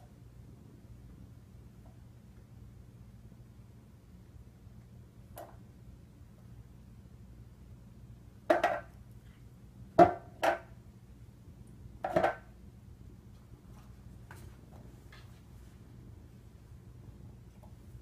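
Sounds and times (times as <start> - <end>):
canister knocking on tile floor: 8.5 - 8.9, 10.0 - 10.6, 12.0 - 12.4.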